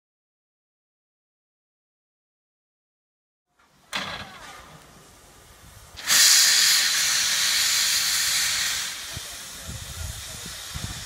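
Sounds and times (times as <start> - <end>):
steam locomotive hissing: 4.0 - 11.0.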